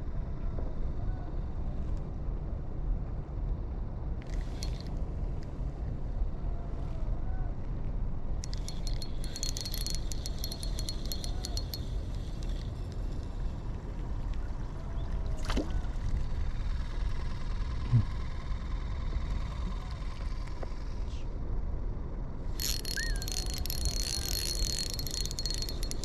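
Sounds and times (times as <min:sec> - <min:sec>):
rapid even clicks: 0:08.4 - 0:12.6, 0:22.6 - 0:26.0.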